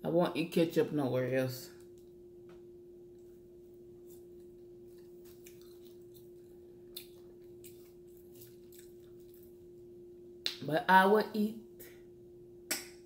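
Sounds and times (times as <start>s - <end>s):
steady hum: 0.0s - 13.0s
soft chewing with mouth clicks: 4.0s - 9.9s.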